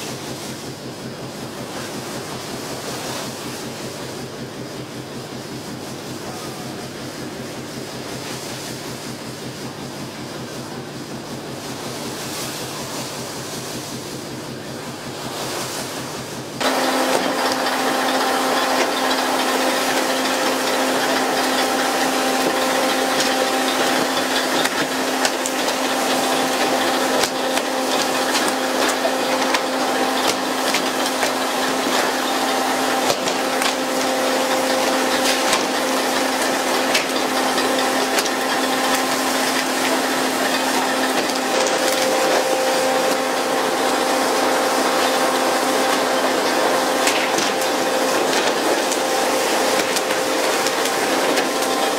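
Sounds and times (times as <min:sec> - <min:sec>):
steady machine hum: 0:00.0 - 0:51.9.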